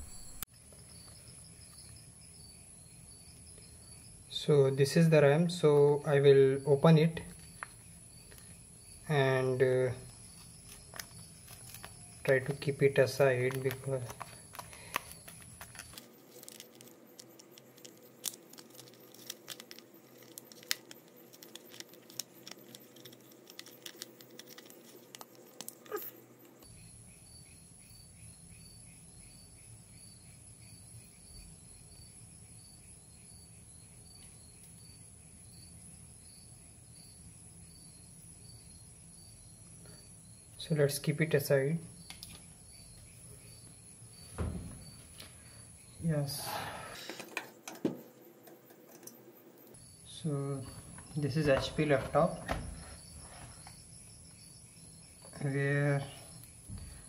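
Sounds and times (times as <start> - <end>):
soft steady chirping: 0.0 - 57.0
plastic packaging crackling: 10.2 - 26.1.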